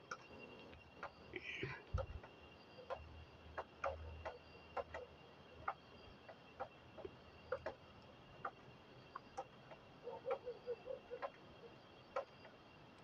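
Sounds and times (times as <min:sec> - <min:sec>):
tape clicks and ticks: 0:00.1 - 0:10.5.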